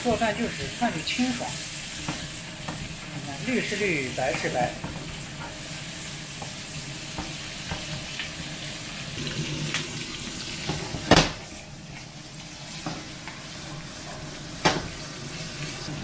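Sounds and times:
meat and vegetables sizzling: 0.0 - 16.0
knock on pan: 10.6 - 11.5, 14.6 - 15.0.

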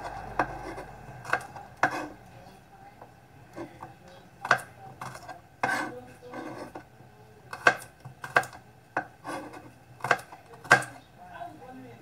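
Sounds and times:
knife chopping garlic on board: 0.0 - 2.2, 3.5 - 6.9, 7.5 - 11.0
knife scraping: 0.0 - 2.2, 3.5 - 6.9, 7.5 - 11.0.

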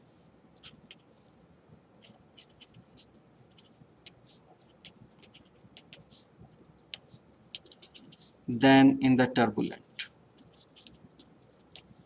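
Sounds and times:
pen writing on paper: 0.6 - 1.3, 2.0 - 8.4, 10.4 - 12.0.

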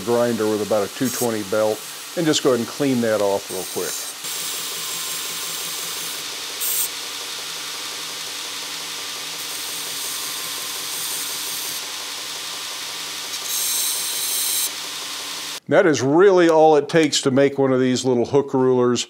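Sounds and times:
metal grinding hiss: 0.0 - 7.5
belt grinder running: 0.0 - 15.6.

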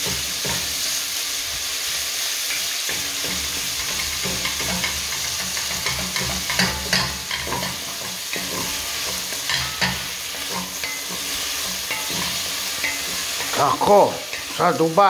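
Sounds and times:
meat sizzling in a pan: 0.0 - 15.0
wooden spatula scraping pan: 3.2 - 14.9.

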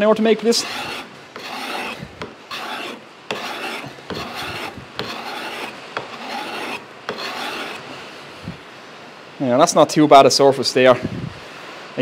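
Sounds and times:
card scraper rasping on wood: 0.5 - 7.9.

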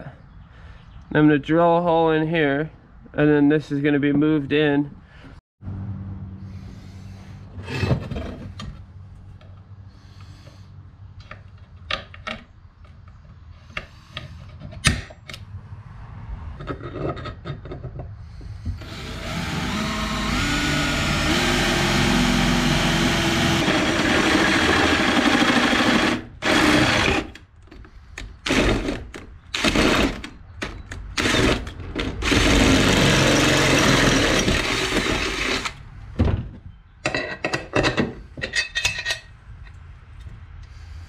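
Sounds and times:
power drill boring steel: 18.8 - 27.4, 29.6 - 30.2, 31.2 - 35.8.

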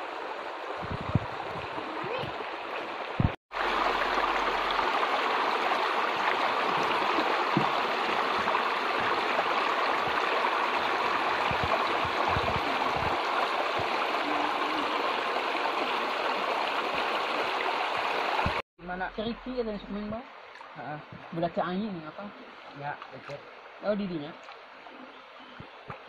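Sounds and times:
stream rushing over stones: 0.0 - 18.6.

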